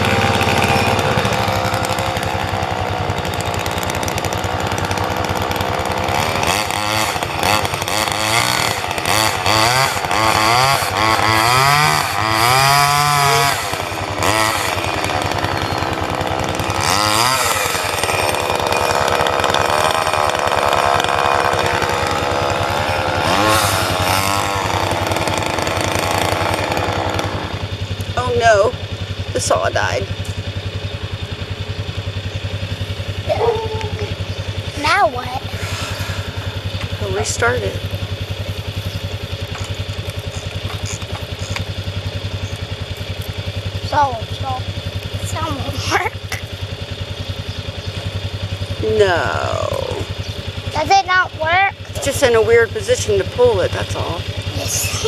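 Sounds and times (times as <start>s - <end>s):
chainsaw revving: 0.0s - 55.0s.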